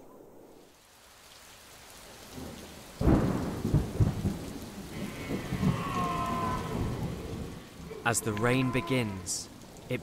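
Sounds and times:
rain hissing: 0.5 - 10.0
thunder rumbling: 2.4 - 8.0.

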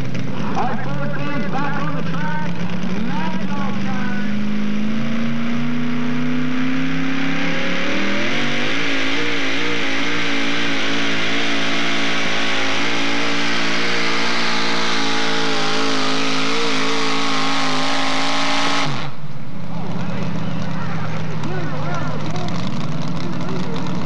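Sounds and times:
truck engine at full throttle: 0.0 - 24.0.

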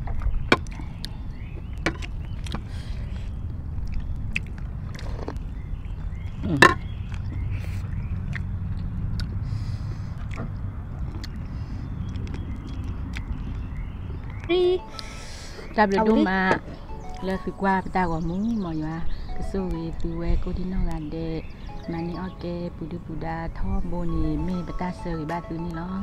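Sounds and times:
chewing: 0.6 - 15.3.

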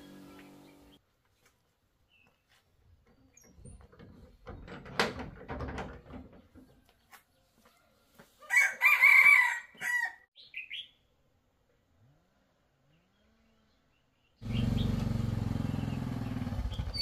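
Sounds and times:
rooster crowing: 8.4 - 10.3.

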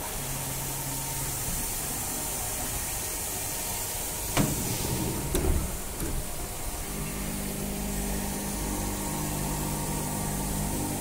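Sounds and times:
machine hum and hiss: 0.0 - 11.0.

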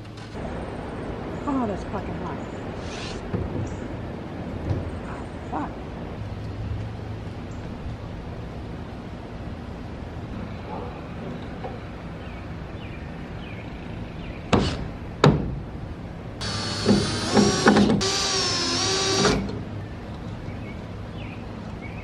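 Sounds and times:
power drill drilling into wood: 16.4 - 19.5.

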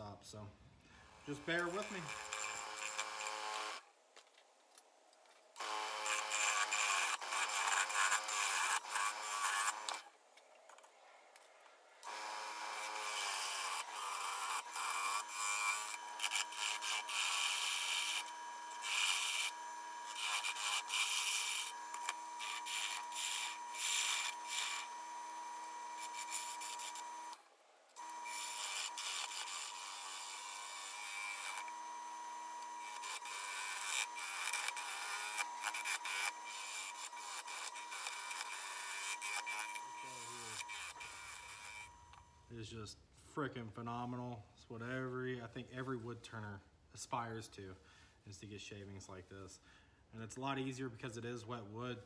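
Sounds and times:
gouge shaving wood on lathe: 1.3 - 3.8, 5.6 - 10.0, 12.1 - 27.3, 28.0 - 41.9
lathe whine: 5.6 - 10.0, 12.1 - 27.4, 28.0 - 42.4.

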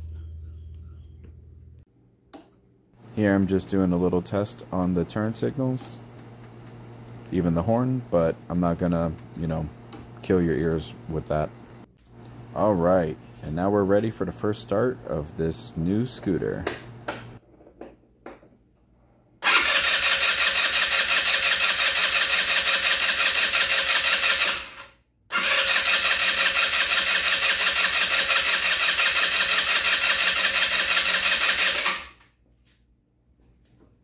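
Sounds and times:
electric starter cranking engine: 19.4 - 32.2.

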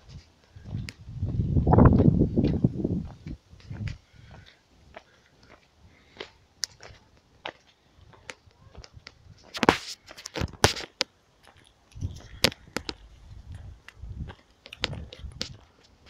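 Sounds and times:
microphone bumps and rumble: 0.6 - 4.0, 12.0 - 15.6
footsteps crunching on gravel: 6.2 - 16.0.

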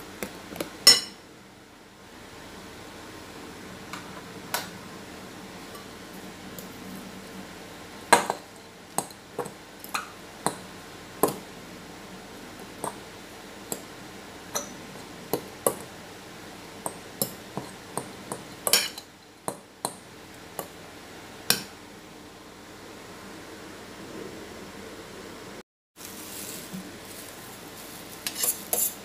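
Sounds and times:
fork clinking against glass bowl: 18.7 - 19.1.

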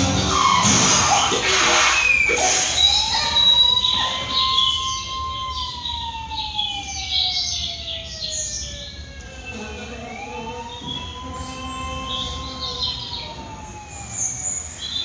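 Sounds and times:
ambulance siren wailing: 0.0 - 15.0.

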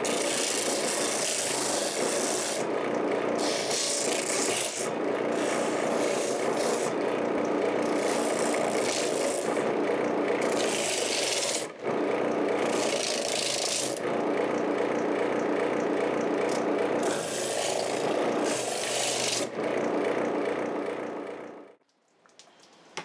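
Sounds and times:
sole grinding on sanding disc: 0.0 - 2.7, 3.4 - 14.2, 16.5 - 20.0
disc sander running: 0.0 - 21.8.

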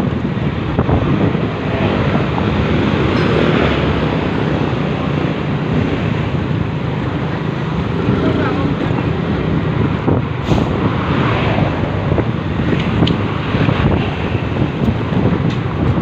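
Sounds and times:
road and engine noise: 0.0 - 16.0
wind buffeting microphone: 0.0 - 16.0.

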